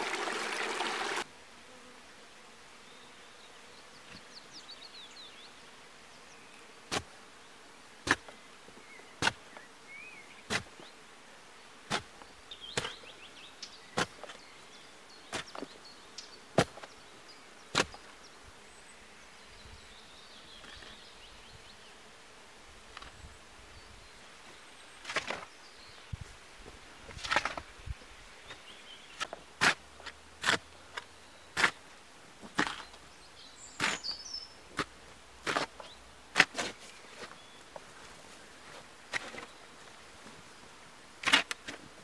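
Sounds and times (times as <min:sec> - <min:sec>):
shovel striking packed earth: 0:08.0 - 0:08.3, 0:09.2 - 0:09.4, 0:10.5 - 0:10.7, 0:11.9 - 0:12.1, 0:12.7 - 0:13.0, 0:14.0 - 0:14.4, 0:17.7 - 0:18.0, 0:25.0 - 0:25.5, 0:27.1 - 0:27.7, 0:29.2 - 0:31.8, 0:32.4 - 0:32.9, 0:33.8 - 0:37.4, 0:39.1 - 0:39.5, 0:41.2 - 0:41.9
dirt thrown off shovel: 0:25.0 - 0:25.5, 0:27.1 - 0:27.7, 0:32.6 - 0:32.9, 0:34.8 - 0:37.3.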